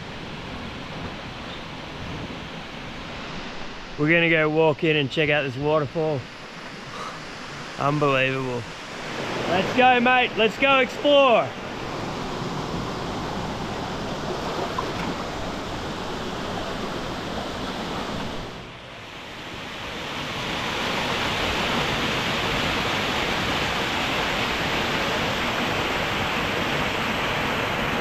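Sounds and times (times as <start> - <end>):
shallow river water flowing: 0.0 - 28.0
small waterfall cascading: 19.3 - 28.0.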